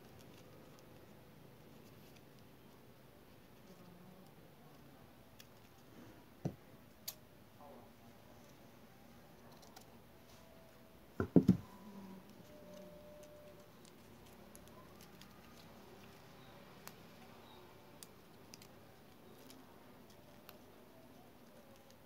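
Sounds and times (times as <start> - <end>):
paper strips rustling: 0.0 - 5.9, 12.2 - 22.0.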